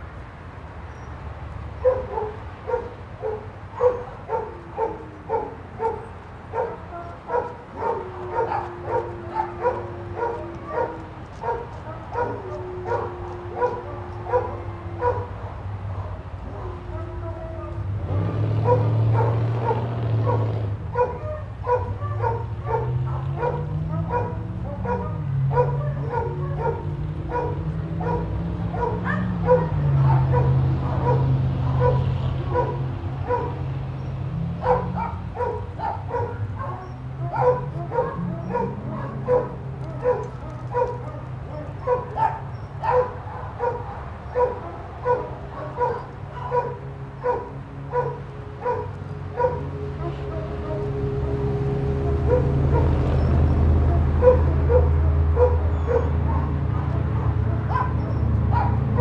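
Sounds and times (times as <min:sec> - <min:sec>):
small dog barking: 0:01.8 - 0:17.4, 0:18.2 - 0:33.6, 0:34.6 - 0:50.3, 0:54.2 - 0:59.0.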